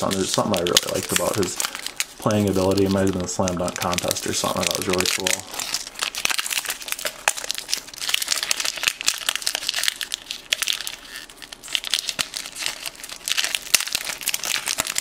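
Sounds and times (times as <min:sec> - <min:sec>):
cards flipped and rustling: 0:00.0 - 0:05.9.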